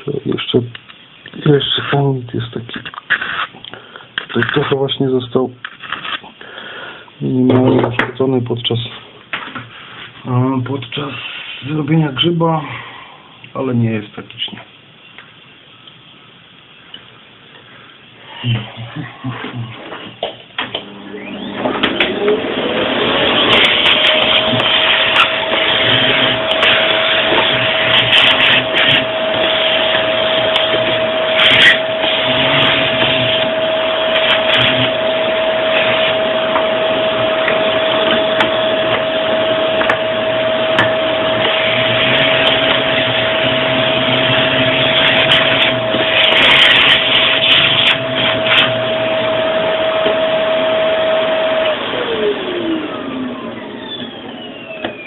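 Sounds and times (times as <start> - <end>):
motor spinning down: 20.7 - 55.0
rotary tool grinding metal: 23.2 - 48.9.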